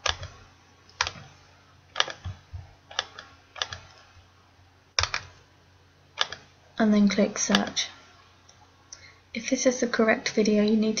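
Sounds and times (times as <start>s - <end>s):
computer mouse clicks: 0.0s - 1.3s, 1.9s - 4.1s, 5.0s - 5.4s, 6.2s - 6.5s, 7.4s - 7.8s
keyboard key clicks: 2.0s - 3.9s, 5.0s - 5.4s, 6.2s - 6.5s.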